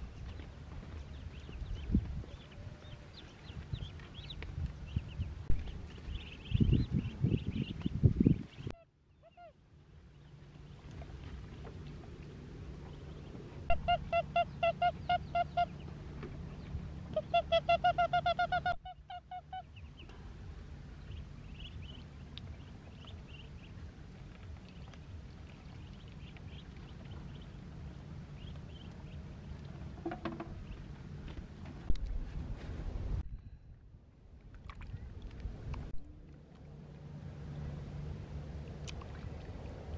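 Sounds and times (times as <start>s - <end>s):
ducklings peeping: 0.0s - 9.6s, 12.8s - 15.9s, 16.5s - 20.2s, 21.0s - 30.9s.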